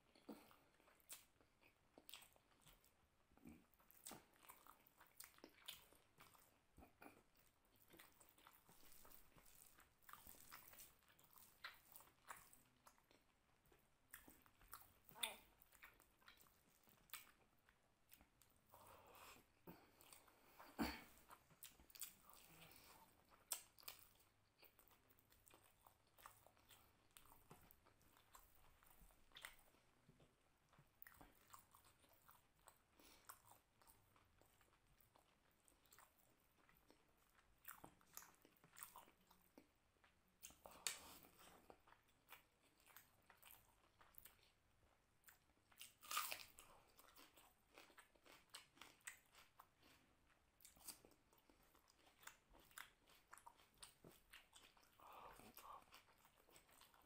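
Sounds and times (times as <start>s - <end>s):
person chewing and eating: 0.0s - 57.0s.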